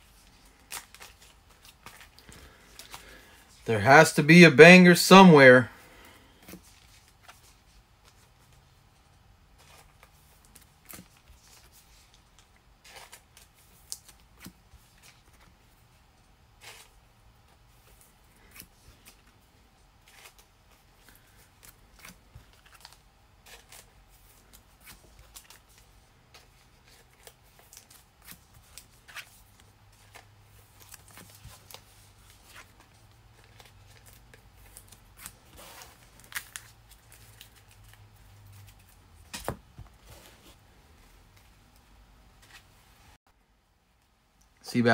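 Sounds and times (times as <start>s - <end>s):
trading cards being handled: 0.0s - 8.9s, 16.6s - 42.8s.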